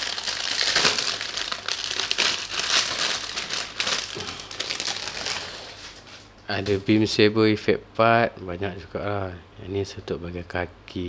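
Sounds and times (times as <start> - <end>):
plastic bags crinkling: 0.0 - 6.3.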